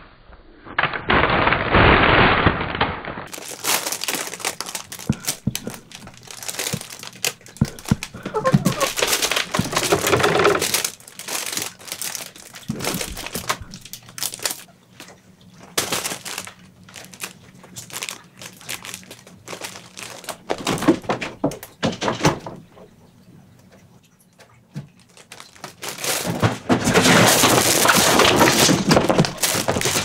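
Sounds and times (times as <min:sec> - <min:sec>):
crinkling and rustling: 0:00.8 - 0:23.0, 0:23.6 - 0:30.0
thumps: 0:03.6 - 0:10.9.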